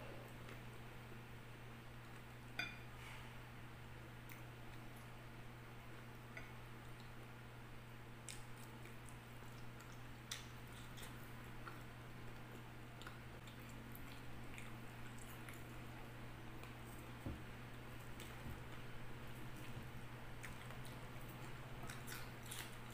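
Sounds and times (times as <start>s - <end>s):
low steady hum: 0.0s - 22.9s
chewing salad: 0.2s - 0.8s, 1.9s - 2.9s, 4.0s - 22.9s.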